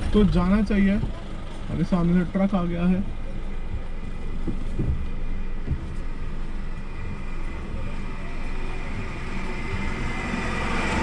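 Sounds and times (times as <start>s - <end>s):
soft thumps from road: 0.0s - 1.8s, 3.6s - 7.2s
engine and tyre rumble: 0.0s - 11.0s.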